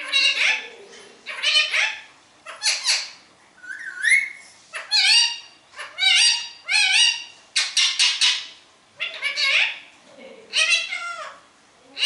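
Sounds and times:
parakeet whistling calls: 1.3 - 9.8.

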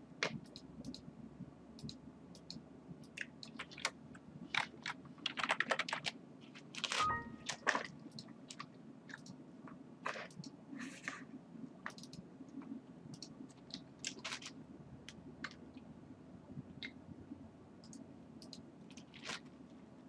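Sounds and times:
computer mouse clicking: 0.2 - 1.1, 1.8 - 6.2, 6.8 - 9.4, 10.0 - 10.6, 11.8 - 15.6, 17.8 - 19.5
short faint tone: 7.0 - 7.6.

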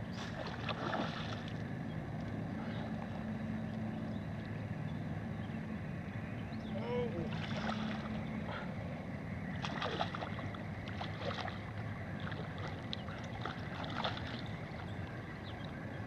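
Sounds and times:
steady low background noise: 0.0 - 16.0
fish splashing in water: 0.2 - 1.6, 7.3 - 8.2, 9.5 - 14.8.

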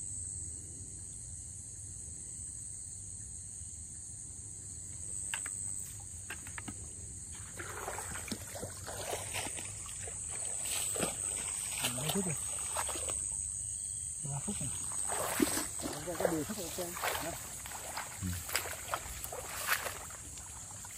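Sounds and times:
crickets chirring: 0.0 - 20.9
wading through grass and water: 4.9 - 20.9.

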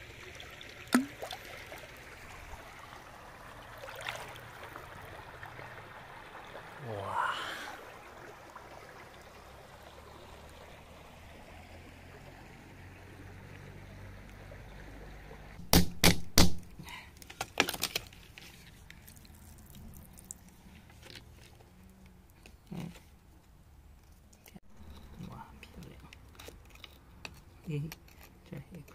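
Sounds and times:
stream water running: 0.0 - 28.9
small clicks and scrapes: 17.2 - 19.4, 20.2 - 28.9.

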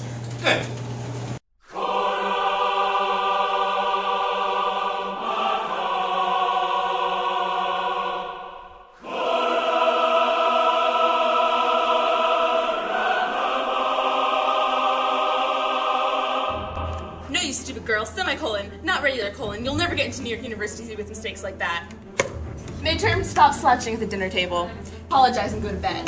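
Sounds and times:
choir-like music chords: 1.6 - 20.4.

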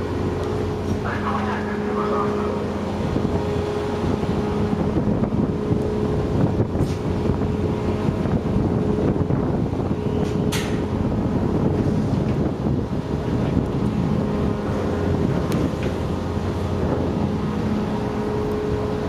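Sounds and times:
ship engines rumbling: 0.0 - 19.0
wind buffeting microphone: 0.0 - 19.0.

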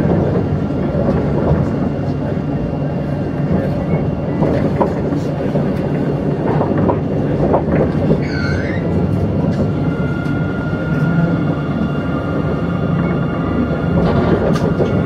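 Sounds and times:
tram rumbling along track: 0.0 - 15.0
short high squeal: 8.2 - 8.9.

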